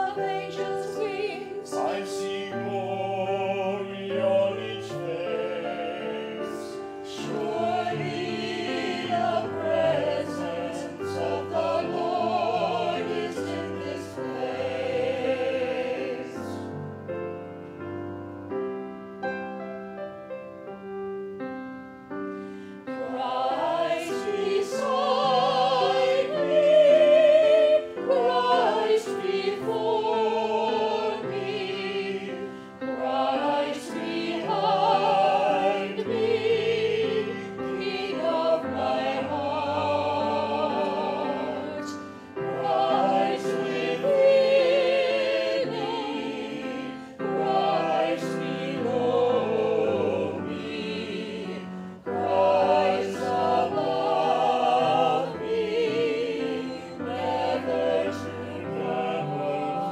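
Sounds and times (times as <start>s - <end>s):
choir singing: 0.0s - 18.5s, 22.3s - 59.9s
grand piano: 0.0s - 59.9s.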